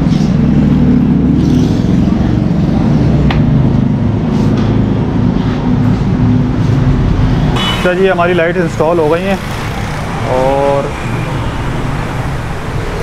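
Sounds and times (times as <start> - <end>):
engine running: 0.0 - 13.0.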